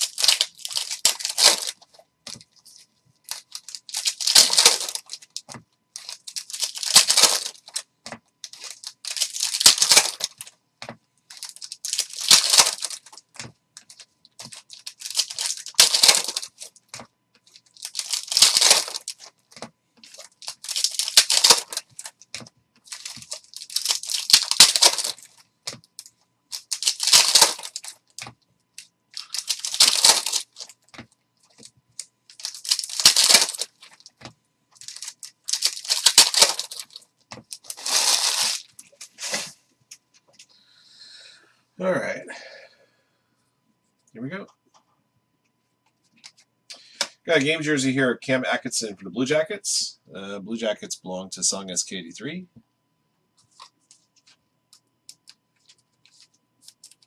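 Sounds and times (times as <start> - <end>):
foil wrappers ripping open: 0.0 - 1.8, 3.3 - 7.8, 8.4 - 10.5, 11.3 - 13.2, 13.8 - 16.7, 17.6 - 19.3, 20.0 - 22.2, 22.9 - 25.8, 26.5 - 28.3, 29.2 - 30.8, 32.3 - 34.2, 34.8 - 39.5, 55.2 - 57.0.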